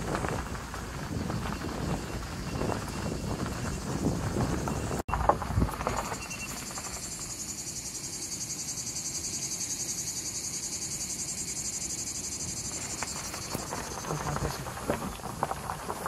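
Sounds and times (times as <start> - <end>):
cicadas buzzing: 0.0 - 16.0.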